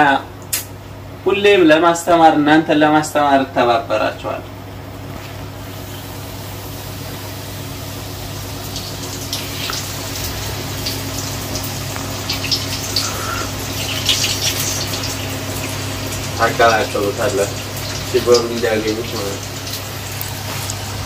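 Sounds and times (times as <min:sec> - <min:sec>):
steady low hum: 0:00.0 - 0:21.0
food deep-frying in hot oil: 0:05.1 - 0:21.0
sharp spattering crackles: 0:08.2 - 0:21.0.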